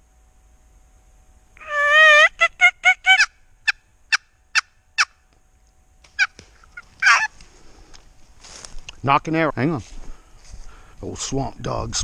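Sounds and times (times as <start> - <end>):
turkey yelping: 1.6 - 5.2, 6.1 - 7.4.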